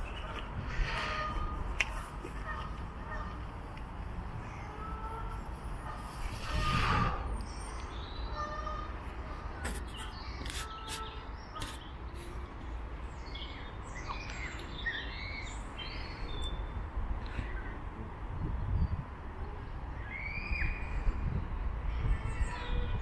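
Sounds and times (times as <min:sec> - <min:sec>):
small birds chirping: 0:09.7 - 0:17.8.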